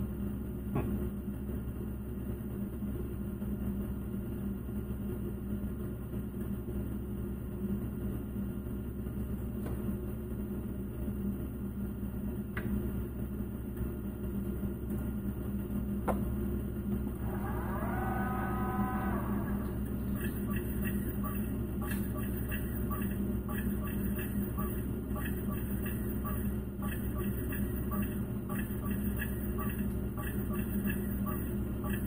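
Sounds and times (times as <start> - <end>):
low machine hum: 0.0 - 32.0.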